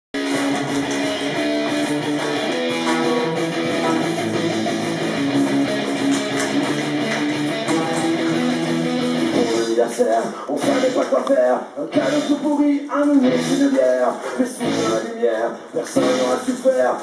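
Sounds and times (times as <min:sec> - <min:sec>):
guitar strumming chords: 0:00.2 - 0:09.8, 0:14.6 - 0:15.1.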